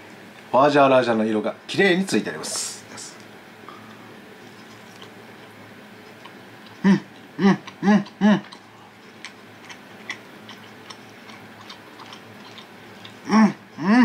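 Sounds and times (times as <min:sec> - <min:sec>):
hummed mm sounds: 0:02.4 - 0:14.0
man chewing: 0:03.2 - 0:13.9.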